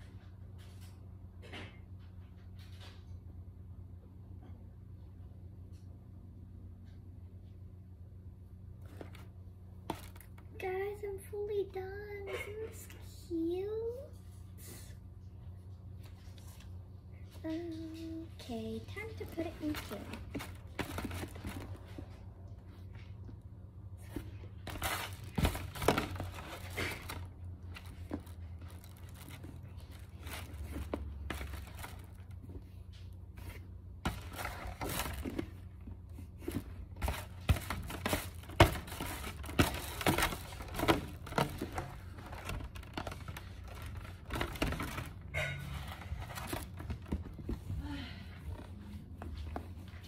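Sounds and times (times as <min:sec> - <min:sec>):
plush toy packaging crinkling: 0:09.9 - 0:10.5, 0:18.8 - 0:22.2, 0:24.6 - 0:32.6, 0:34.0 - 0:45.3.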